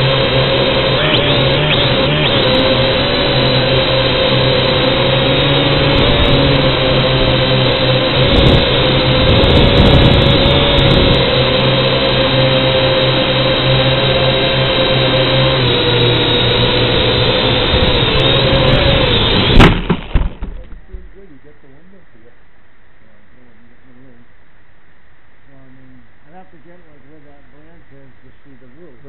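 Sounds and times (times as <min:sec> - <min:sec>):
rushing air: 0:00.0 - 0:20.0
drone propellers whining: 0:00.0 - 0:29.0.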